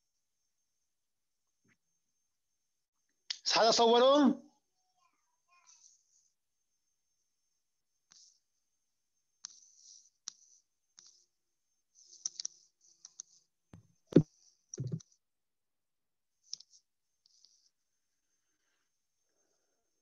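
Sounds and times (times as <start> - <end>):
dull knock: 14.8 - 15.0.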